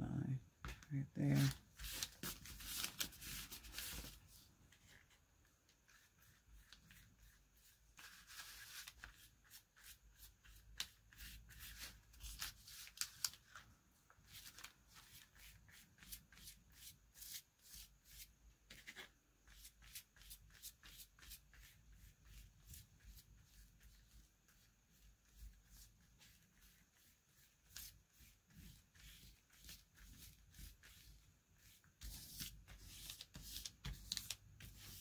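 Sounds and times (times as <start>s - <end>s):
paintbrush scratching on paper: 1.2s - 5.2s, 5.8s - 12.9s, 14.2s - 35.0s
paper rustling: 1.2s - 5.2s, 8.0s - 16.1s, 28.7s - 35.0s.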